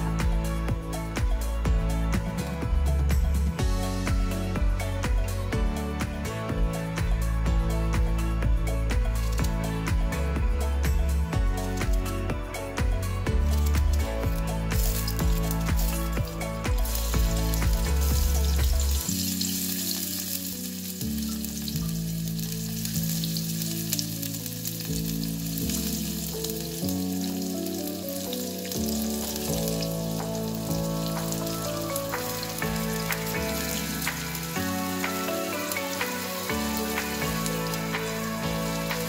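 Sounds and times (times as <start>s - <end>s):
soft background music: 0.0s - 39.0s
onions sizzling in hot oil: 13.4s - 39.0s.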